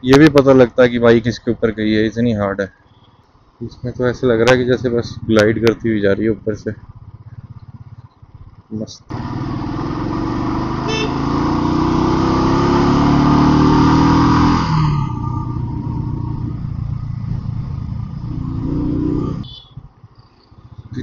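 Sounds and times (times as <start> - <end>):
motorcycle engine accelerating: 4.6 - 21.0.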